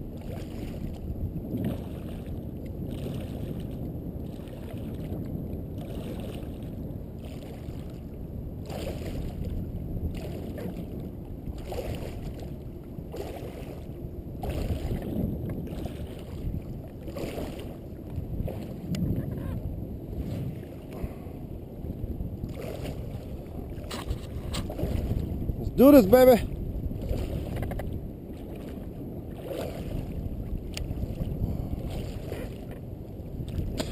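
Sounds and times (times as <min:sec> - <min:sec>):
steady low rumble: 0:00.0 - 0:33.9
water splashing against float tube: 0:27.0 - 0:32.8, 0:33.4 - 0:33.9.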